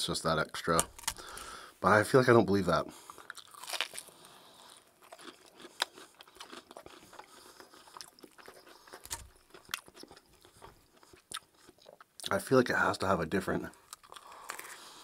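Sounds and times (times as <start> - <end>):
chewing crispy fried chicken: 2.9 - 12.5, 13.7 - 15.0.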